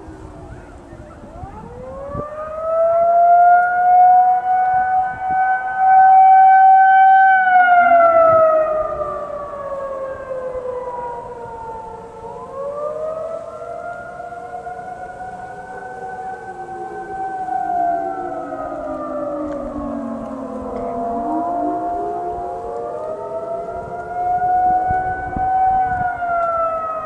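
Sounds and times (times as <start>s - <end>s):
distant sirens wailing: 0.0s - 27.0s
siren wailing: 0.0s - 27.0s.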